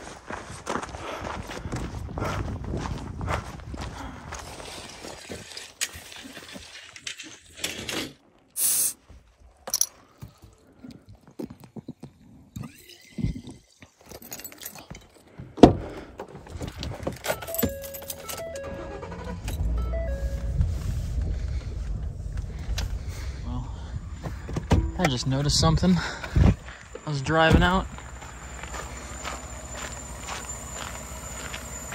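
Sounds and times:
keys jangling: 14.0 - 15.3, 16.7 - 18.6
truck engine rumbling: 14.2 - 31.9
short electronic tones: 17.4 - 21.1, 24.7 - 31.9
truck door shutting: 24.1 - 26.7.

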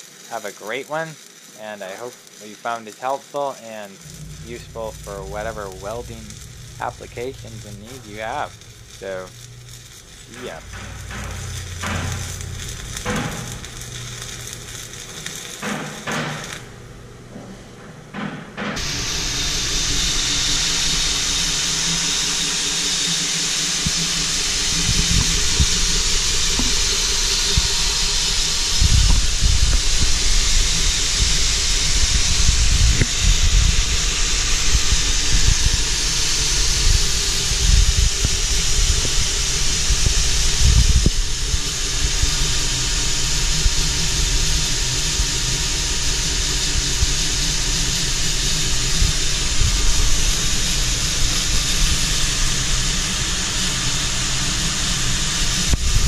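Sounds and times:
belt grinder belt hissing: 0.0 - 16.9, 18.6 - 56.0
faint motor whine: 0.0 - 18.0, 18.6 - 56.0
low thumps: 4.0 - 14.6.

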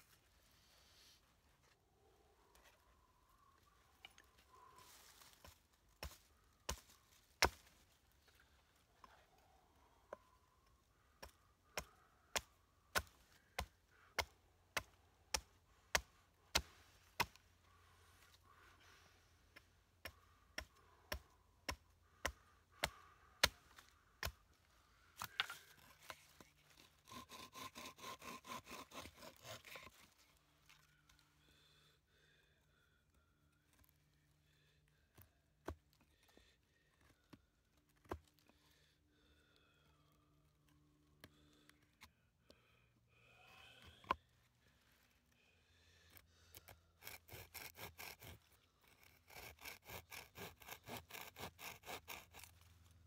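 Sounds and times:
hatchet chopping wood: 5.4 - 7.7, 11.2 - 17.4.

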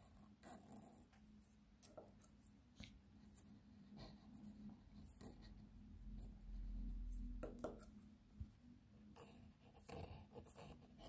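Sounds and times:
pen scratching on paper: 0.0 - 1.2, 3.2 - 8.0, 9.1 - 11.0
steady low hum: 0.0 - 11.0.

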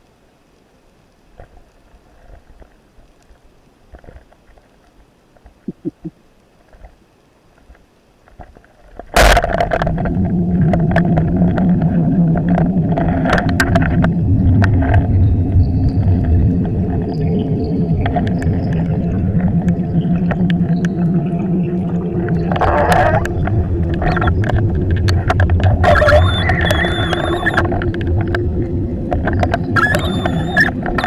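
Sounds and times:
faint underwater clicks: 0.0 - 31.0
churning water with clicks: 7.6 - 31.0.

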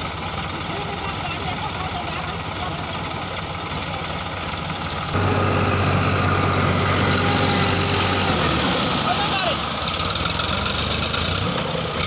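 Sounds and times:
diesel tractor engine running: 0.0 - 12.0.

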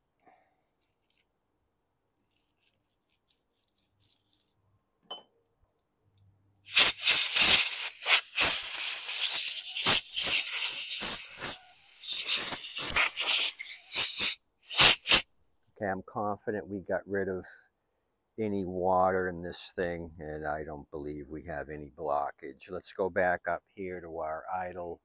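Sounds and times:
compressed air blasts hissing: 6.7 - 15.2.

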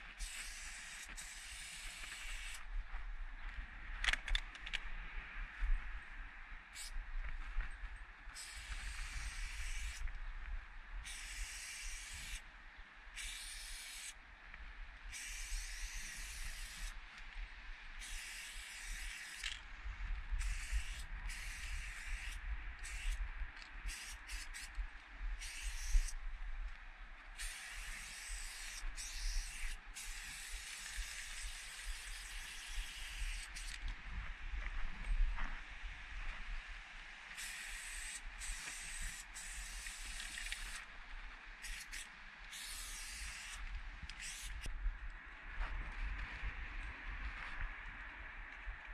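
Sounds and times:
spray paint can hissing: 0.2 - 2.6, 8.4 - 10.0, 11.0 - 12.4, 13.2 - 14.2, 15.1 - 17.0, 18.0 - 19.6, 20.4 - 23.2, 23.8 - 24.7, 25.4 - 26.2, 27.4 - 33.8, 37.3 - 40.8, 41.6 - 44.7.

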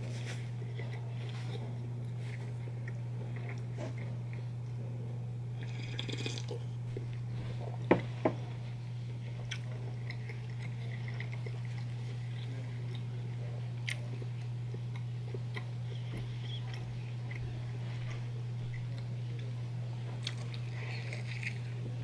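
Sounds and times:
steady low hum: 0.0 - 22.0
close-up chewing and mouth clicks: 0.1 - 4.8, 9.1 - 22.0
cup knocking on table: 7.9 - 8.4.

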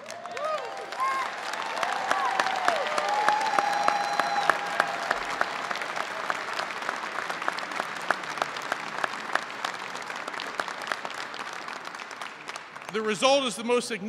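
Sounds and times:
audience applauding: 0.0 - 13.9.

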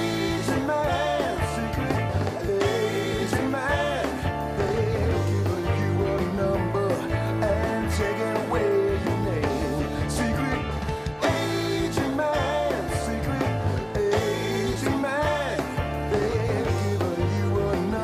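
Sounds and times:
backing vocals: 0.0 - 18.0
bass guitar: 0.0 - 18.0
drums: 0.0 - 18.0
electric guitars: 0.0 - 18.0
man singing lead: 0.0 - 18.0.

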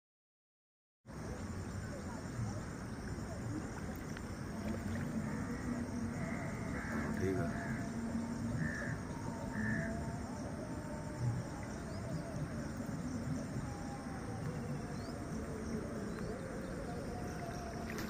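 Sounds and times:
insects: 1.1 - 18.0
floodwater rushing: 2.6 - 9.8, 12.4 - 18.0.

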